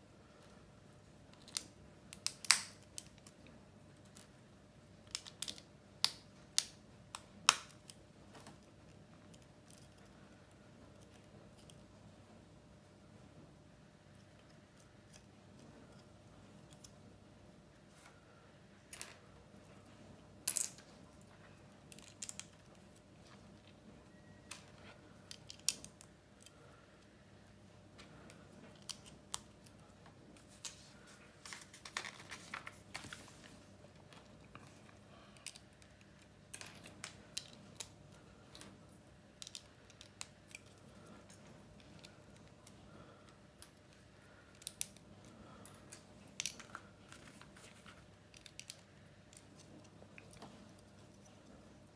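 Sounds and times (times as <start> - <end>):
paper page turning: 30.7 - 33.6.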